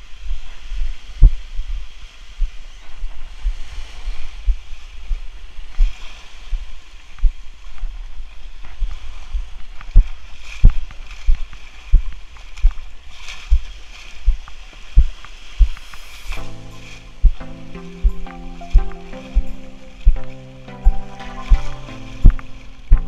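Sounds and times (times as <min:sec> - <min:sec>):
water splashing against kayak: 0:00.0 - 0:23.0
low thumps: 0:15.0 - 0:23.0.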